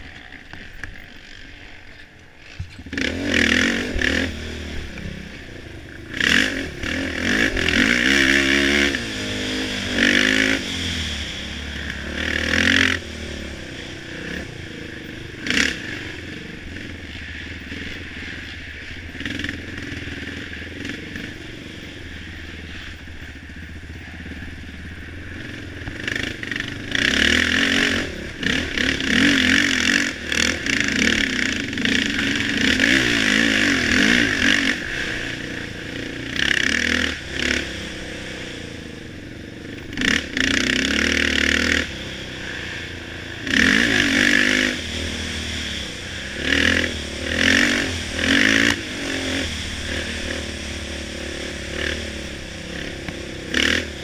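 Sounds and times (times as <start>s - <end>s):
clatter and scraping over rough ground: 0.0s - 38.7s
off-road engine revving: 0.0s - 54.0s.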